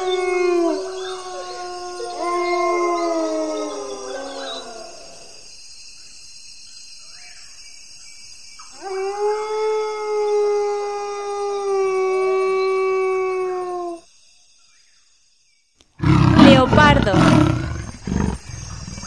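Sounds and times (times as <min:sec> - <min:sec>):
wolf howling: 0:00.0 - 0:05.3, 0:08.8 - 0:14.0.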